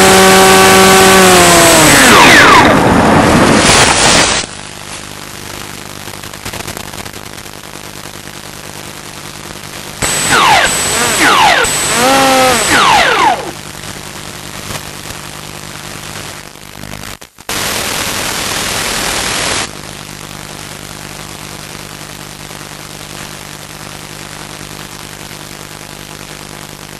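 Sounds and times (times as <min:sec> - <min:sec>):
static hiss: 0:00.0 - 0:26.9.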